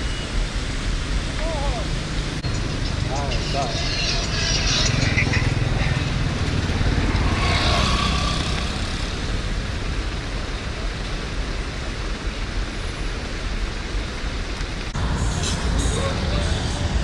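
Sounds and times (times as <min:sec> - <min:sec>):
traffic engines humming: 0:00.0 - 0:17.0.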